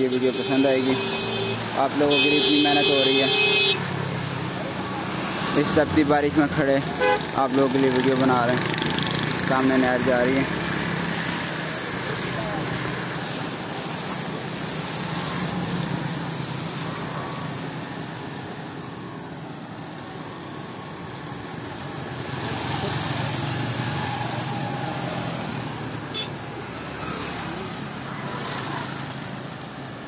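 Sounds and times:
tyres hissing on wet road: 0:00.0 - 0:30.0
vehicle passing: 0:08.0 - 0:18.4, 0:21.6 - 0:29.6.

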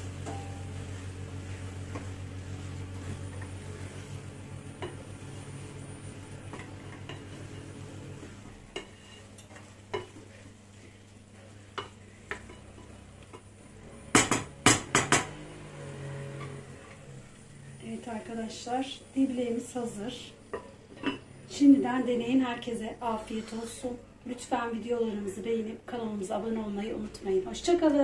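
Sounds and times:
loud metal clanks against pot: 0:14.1 - 0:15.3.

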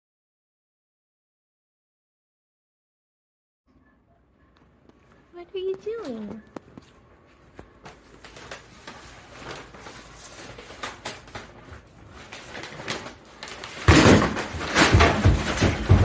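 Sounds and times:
paper bag crinkling on wooden floor: 0:04.9 - 0:16.0.

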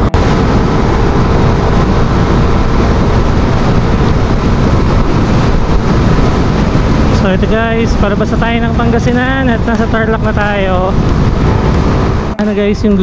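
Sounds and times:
motorcycle engine running: 0:00.0 - 0:13.0
wind rushing over microphone: 0:00.0 - 0:13.0.

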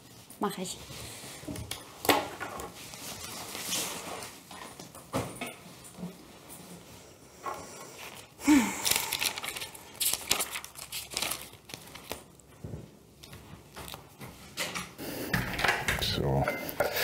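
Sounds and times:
paper rustling: 0:02.6 - 0:04.8, 0:08.8 - 0:12.5, 0:13.2 - 0:14.6.

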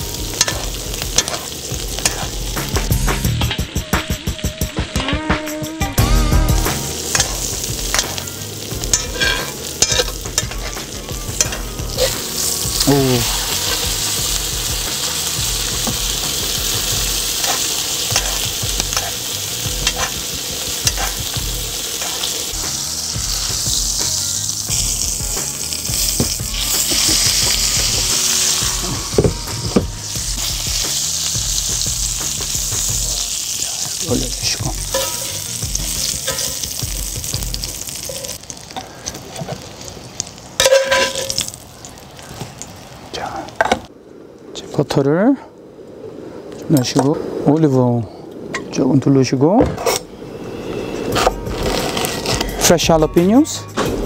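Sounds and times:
steak sizzling in butter: 0:00.0 - 0:05.2, 0:06.0 - 0:43.5
metal spoon scraping a pan: 0:00.3 - 0:02.3, 0:07.1 - 0:12.6, 0:17.3 - 0:22.4, 0:34.8 - 0:37.2, 0:37.9 - 0:38.4, 0:40.6 - 0:41.4.

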